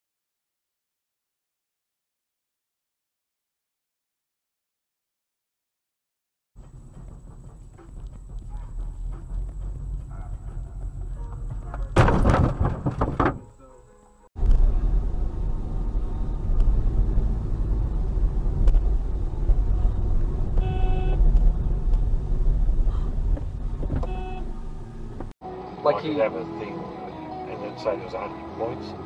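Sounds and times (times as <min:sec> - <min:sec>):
car road and engine rumble: 0:06.6 - 0:25.4
short horn-like note: 0:20.6 - 0:21.2, 0:24.0 - 0:24.5.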